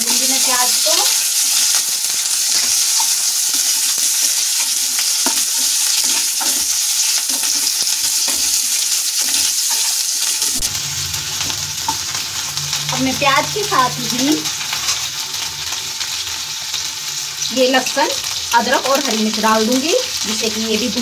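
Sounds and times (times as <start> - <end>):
onions sizzling in hot oil: 0.0 - 21.0
low steady hum: 10.6 - 14.7.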